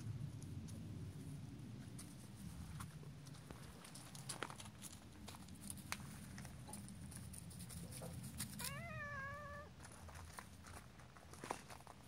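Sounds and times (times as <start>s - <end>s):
light clicks and rustles: 1.8s - 8.8s
cat meowing: 8.6s - 9.8s.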